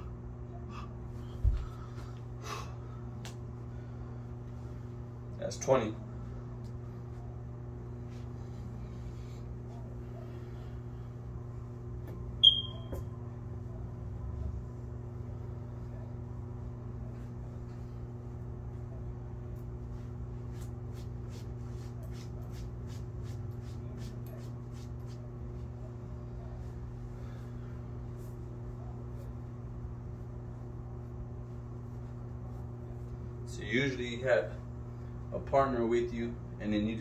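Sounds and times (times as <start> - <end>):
high-pitched electronic beep: 12.4 - 12.9.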